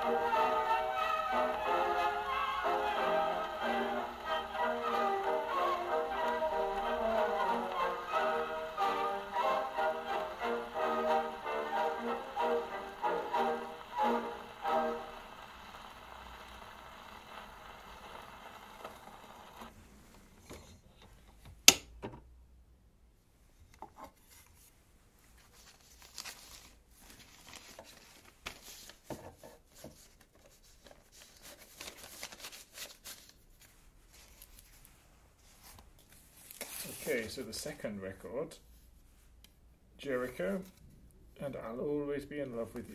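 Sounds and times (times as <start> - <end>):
gramophone needle hiss: 0.0 - 20.2
paper record sleeve rustling: 0.0 - 20.4, 25.3 - 37.8.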